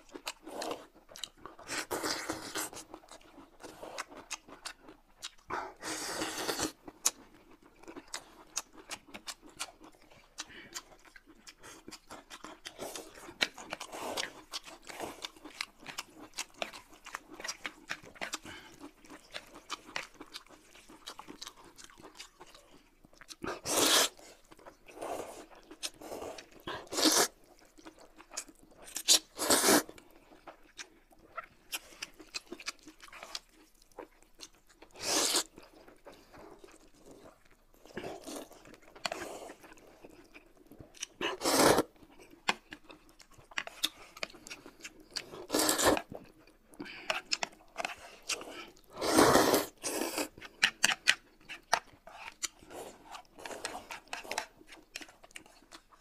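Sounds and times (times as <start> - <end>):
soft chewing: 0.0 - 56.0
noodle slurping: 23.5 - 24.3, 25.0 - 27.4, 29.1 - 30.0, 35.0 - 35.5, 41.2 - 42.0, 45.4 - 46.1, 46.9 - 51.0.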